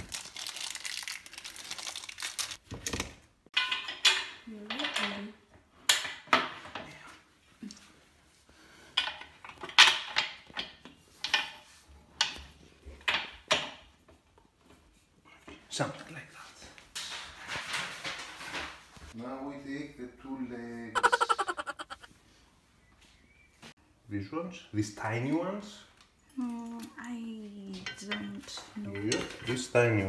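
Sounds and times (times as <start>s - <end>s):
table frame parts clacking: 2.7s - 6.8s, 9.0s - 13.9s.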